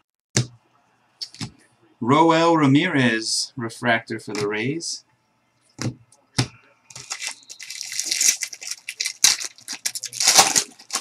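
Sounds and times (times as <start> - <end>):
wrapper torn and crinkled: 7.0 - 11.0.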